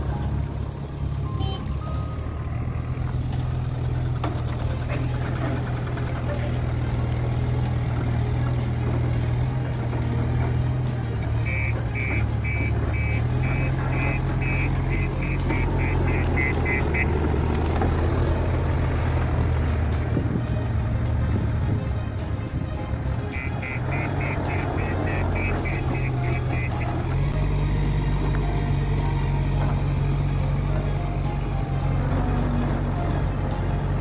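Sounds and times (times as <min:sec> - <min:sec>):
diesel engine running: 0:00.0 - 0:34.0
electronic warning beeper: 0:11.4 - 0:17.1.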